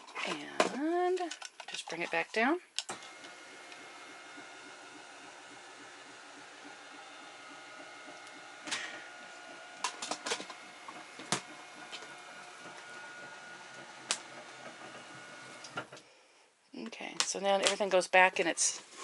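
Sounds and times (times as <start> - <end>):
sharp clicks and knocks: 0.0 - 16.1
motorized lift whining: 2.9 - 16.0.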